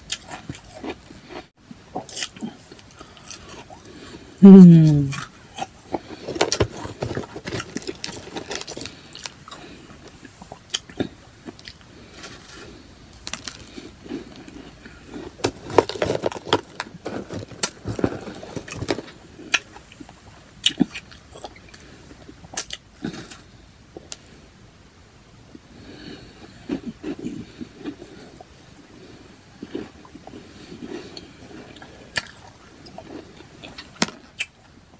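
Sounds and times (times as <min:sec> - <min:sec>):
ice being chewed: 0:00.0 - 0:04.2, 0:05.4 - 0:24.3, 0:29.1 - 0:34.7
hand rummaging in plastic tub: 0:15.5 - 0:19.1.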